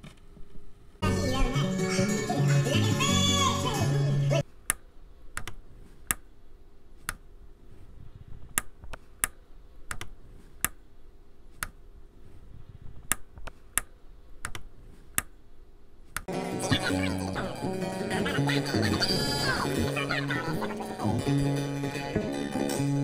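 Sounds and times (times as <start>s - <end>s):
vinyl record pops and clicks: 0.0s - 0.7s, 4.6s - 6.3s, 7.0s - 10.8s, 11.5s - 15.4s
faint steady hum: 0.0s - 23.0s.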